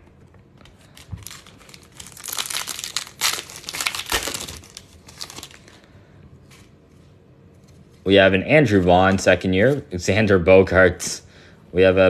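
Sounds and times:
foil wrapper crinkling and tearing: 0.7s - 5.9s.

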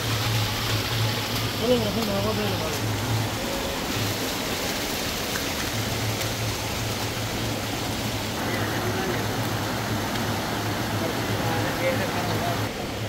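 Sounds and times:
stream rushing over rocks: 0.0s - 13.0s
water spilling down stone steps: 0.0s - 13.0s.

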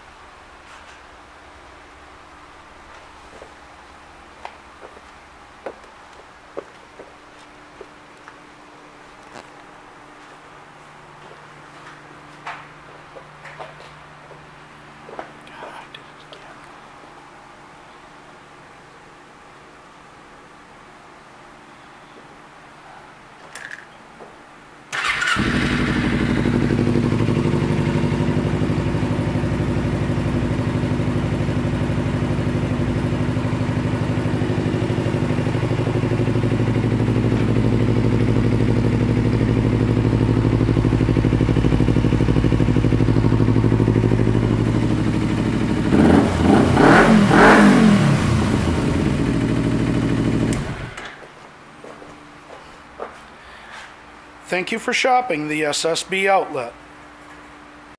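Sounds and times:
motorcycle engine idling: 25.0s - 51.0s
motorcycle engine revving: 25.0s - 51.0s.

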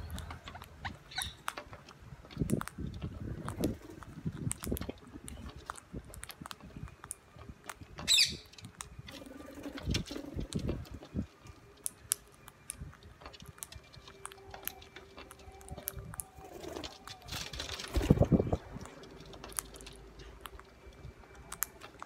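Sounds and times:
parakeets cracking seeds: 0.0s - 22.0s
parakeet squawk: 0.2s - 1.5s, 8.1s - 8.5s.

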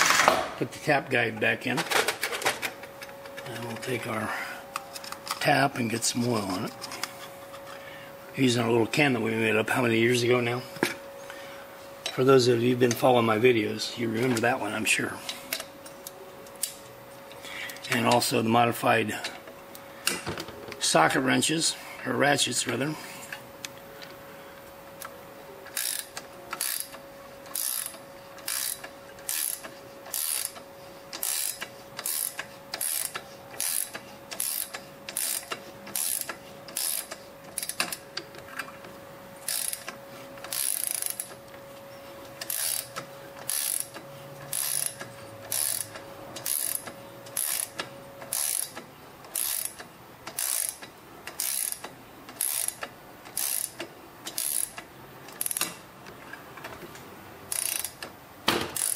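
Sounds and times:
ratchet wrench clicking: 25.7s - 30.6s, 31.2s - 38.0s, 39.4s - 41.4s, 42.4s - 55.8s, 57.5s - 58.1s.

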